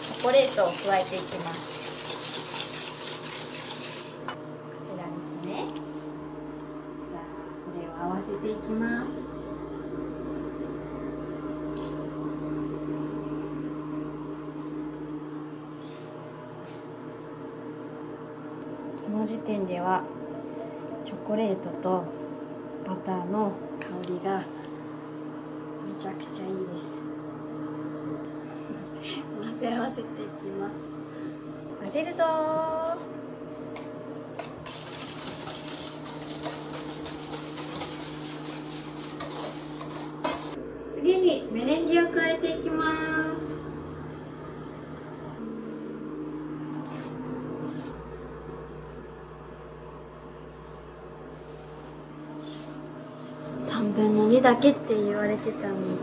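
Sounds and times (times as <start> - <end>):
whisk clinking against metal bowl: 0.0 - 4.0, 34.7 - 40.6
kitchen appliance humming: 0.0 - 56.0.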